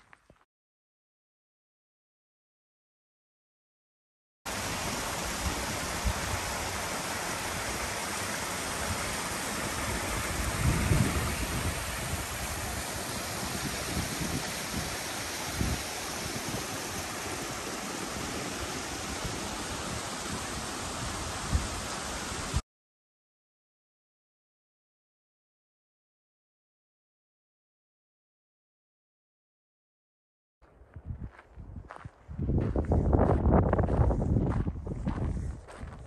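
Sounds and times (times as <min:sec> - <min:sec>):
stream running over rocks: 0:04.5 - 0:22.6.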